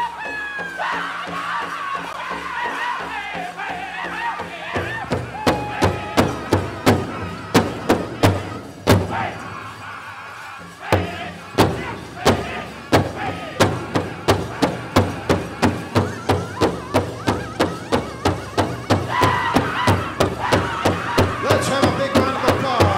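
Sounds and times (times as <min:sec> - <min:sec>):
big drum struck in unison: 0:04.4 - 0:09.6, 0:10.9 - 0:22.9
high-pitched singing: 0:10.8 - 0:22.9.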